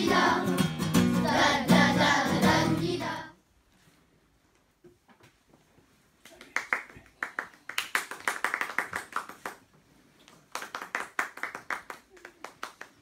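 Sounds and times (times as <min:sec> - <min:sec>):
group clapping hands: 0:01.0 - 0:03.0, 0:06.2 - 0:13.0.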